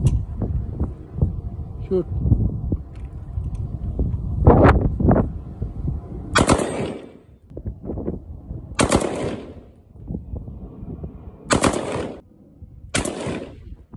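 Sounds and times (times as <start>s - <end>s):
rifle firing rapid shots: 6.4s - 7.2s, 8.8s - 9.6s, 11.5s - 12.2s, 13.0s - 13.7s
gunshot echo: 6.4s - 7.3s, 8.8s - 9.7s, 11.5s - 12.2s, 13.0s - 13.8s.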